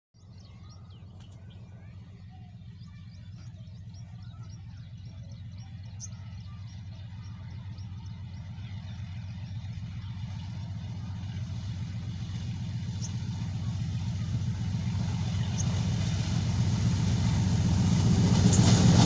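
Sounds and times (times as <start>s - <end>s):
small birds chirping: 0.2s - 18.8s
locomotive engine rumble: 0.2s - 19.0s.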